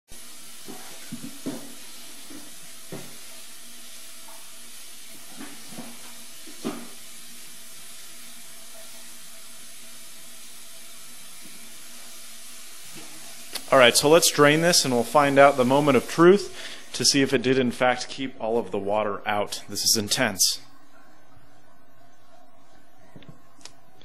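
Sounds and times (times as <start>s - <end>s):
tap water running into sink: 0.1s - 17.5s.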